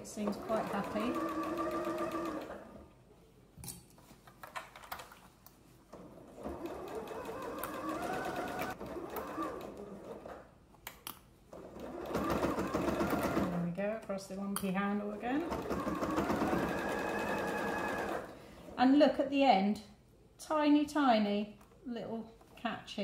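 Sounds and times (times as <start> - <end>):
sewing machine motor whining: 15.6 - 18.3.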